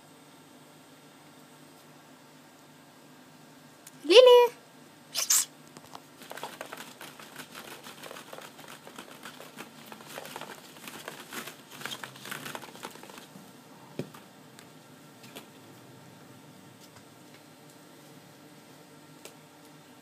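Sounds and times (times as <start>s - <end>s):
plastic balls crinkling and clicking: 5.2s - 13.4s.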